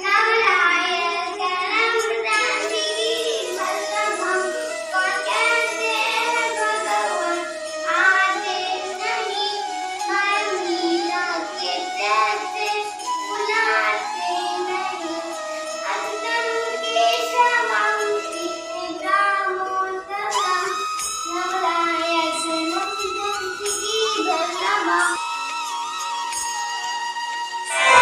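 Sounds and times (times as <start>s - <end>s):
song with singing voice: 1.2s - 21.5s, 27.5s - 28.0s.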